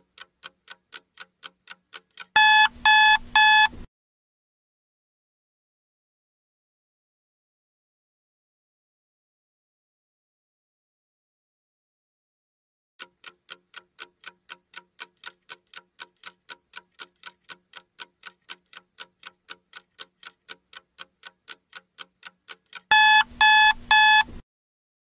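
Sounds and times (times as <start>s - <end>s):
clock ticking quickly: 0.0s - 3.8s, 13.0s - 24.3s
electronic alarm beeping: 2.4s - 3.8s, 22.9s - 24.3s.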